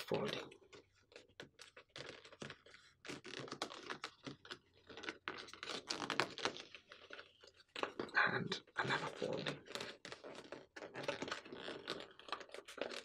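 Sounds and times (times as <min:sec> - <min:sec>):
paper rustling as it is folded: 0:00.8 - 0:08.0.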